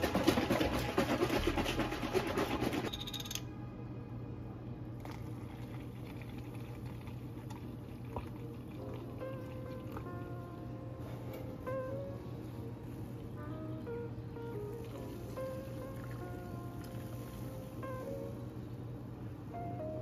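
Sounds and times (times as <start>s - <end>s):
liquid pouring into plastic cup: 5.0s - 10.1s.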